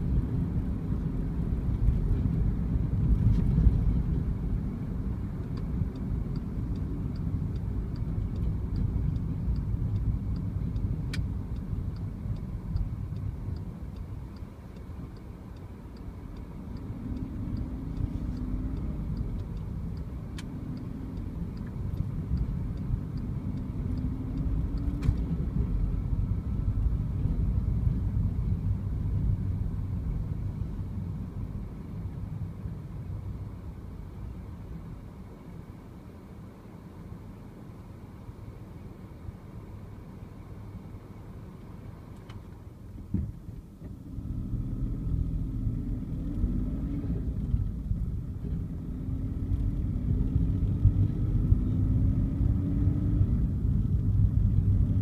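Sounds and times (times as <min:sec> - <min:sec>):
car engine and tyre rumble: 0:00.0 - 0:55.0
indicator ticking: 0:05.5 - 0:24.9.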